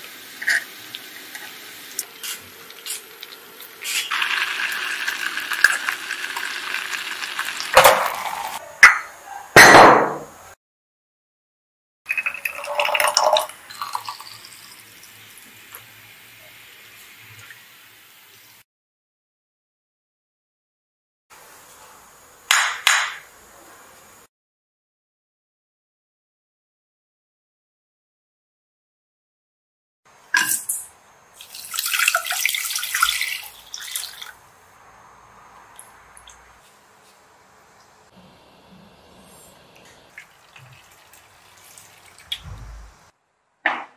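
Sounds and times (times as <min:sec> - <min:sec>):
water pouring into saucepan: 0:04.1 - 0:08.6, 0:12.1 - 0:15.4, 0:31.4 - 0:34.4, 0:40.1 - 0:42.4
liquid trickling into bottle: 0:12.1 - 0:14.7.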